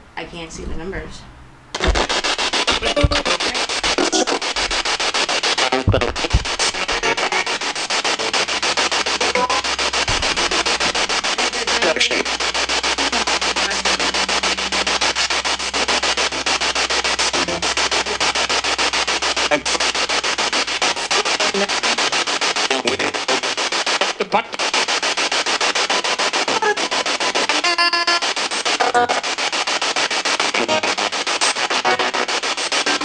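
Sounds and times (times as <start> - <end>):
low hum: 0.0 - 22.1
radio static chopped into bursts: 1.7 - 33.0.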